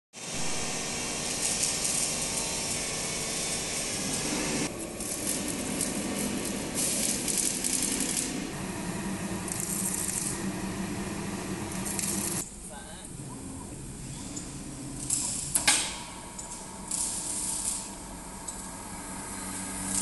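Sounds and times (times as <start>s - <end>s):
hiss of air: 0.2s - 12.4s, 16.7s - 20.0s
low mechanical hum: 0.2s - 20.0s.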